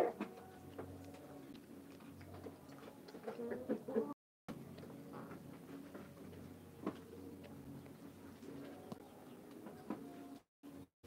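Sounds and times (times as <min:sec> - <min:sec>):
hens clucking: 0:03.1 - 0:04.2.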